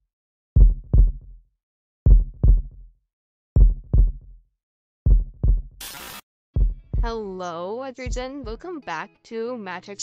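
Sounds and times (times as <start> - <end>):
heartbeat thumps: 0.6 - 1.3, 2.0 - 2.8, 3.6 - 4.4, 5.0 - 5.8, 6.6 - 7.3, 8.1 - 8.7.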